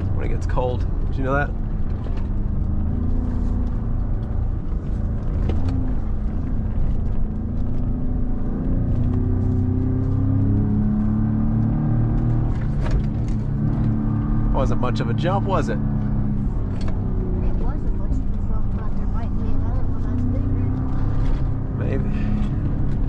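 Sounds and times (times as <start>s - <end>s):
knocks and rattles over bumps: 11.7s - 14.3s.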